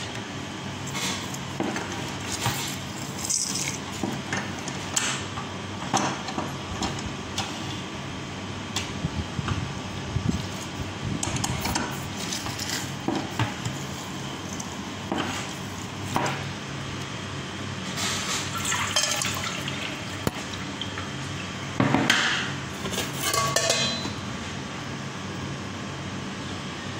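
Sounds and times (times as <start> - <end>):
metal kitchenware clinking: 23.0 - 24.2.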